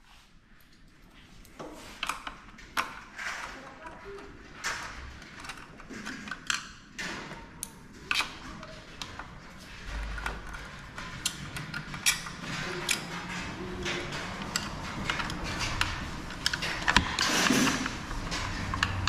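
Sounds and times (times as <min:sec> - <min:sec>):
hand tools clicking and tapping: 0:00.6 - 0:19.0.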